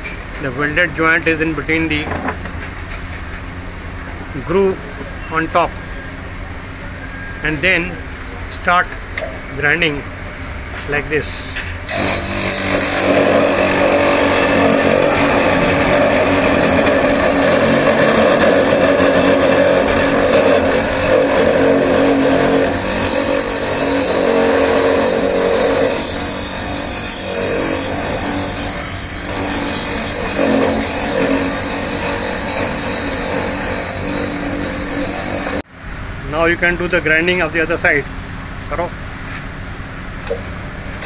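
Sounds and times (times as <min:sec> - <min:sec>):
grinding wheel on metal: 0:11.9 - 0:35.6.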